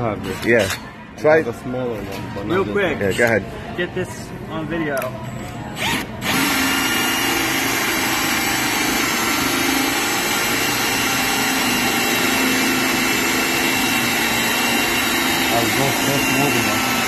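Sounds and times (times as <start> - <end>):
hole saw drill cutting wood: 5.8 - 17.0.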